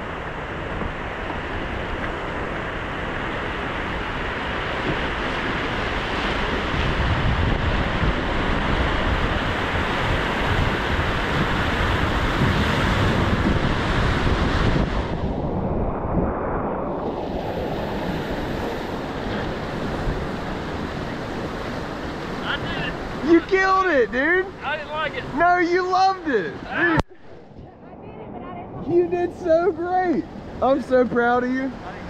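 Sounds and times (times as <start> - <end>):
wind buffeting microphone: 0.0 - 32.0
whitewater rapids rushing: 20.3 - 27.1.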